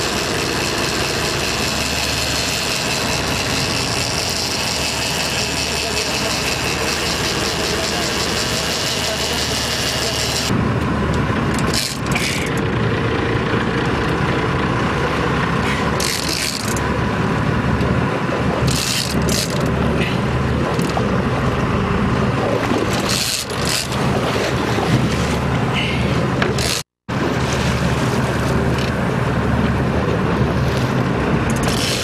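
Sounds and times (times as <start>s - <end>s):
boat engine running: 0.0s - 32.0s
fishing reel winding and clicking: 11.6s - 12.6s, 16.0s - 16.8s, 18.7s - 19.7s, 23.0s - 24.0s.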